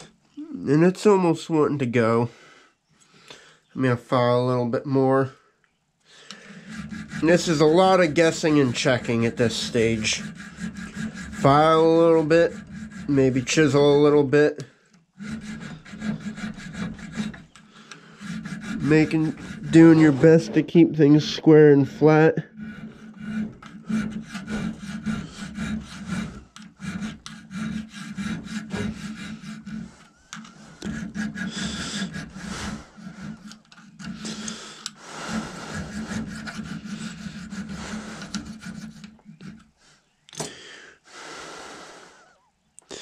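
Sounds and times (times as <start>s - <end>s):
hand file rasping on metal: 6.3s - 39.8s.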